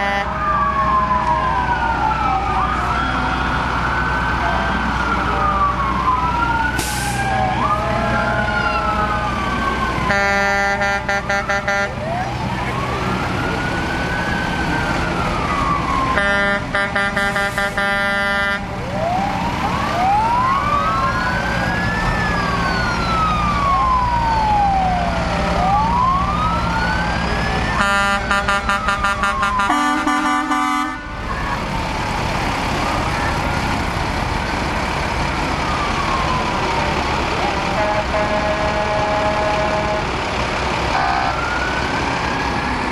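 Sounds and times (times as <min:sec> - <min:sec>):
air horn blasts: 0:00.0 - 0:00.3, 0:10.1 - 0:11.9, 0:16.2 - 0:18.6, 0:27.8 - 0:31.1, 0:37.8 - 0:40.1, 0:40.9 - 0:41.4
emergency sirens wailing: 0:00.0 - 0:42.9
truck engines rumbling: 0:00.0 - 0:42.9.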